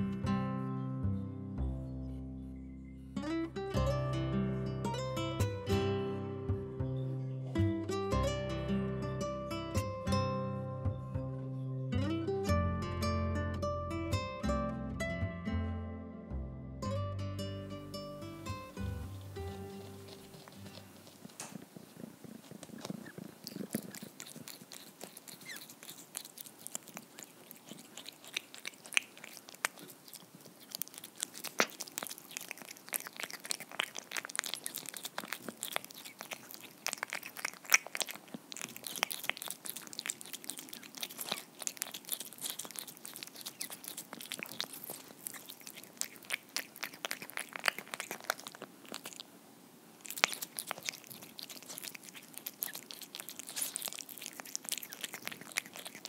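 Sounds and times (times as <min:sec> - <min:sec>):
cat chewing wetly: 0:18.0 - 0:56.0.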